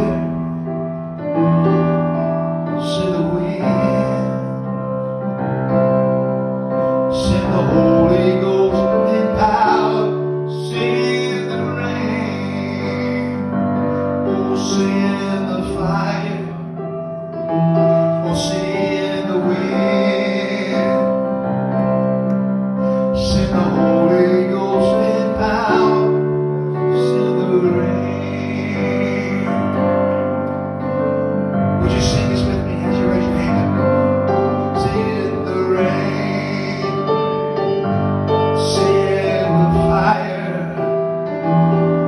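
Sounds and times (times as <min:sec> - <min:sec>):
keyboard sustained chords: 0:00.0 - 0:42.0
person singing: 0:02.7 - 0:04.7, 0:06.8 - 0:16.8, 0:17.8 - 0:21.3, 0:22.9 - 0:30.2, 0:31.6 - 0:42.0.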